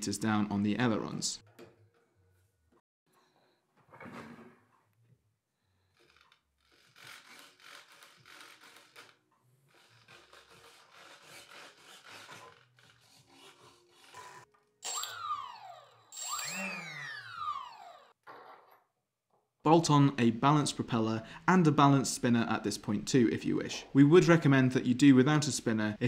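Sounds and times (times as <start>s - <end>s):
small servos buzzing: 13.8s - 18.2s
electric motor whine: 14.8s - 18.1s.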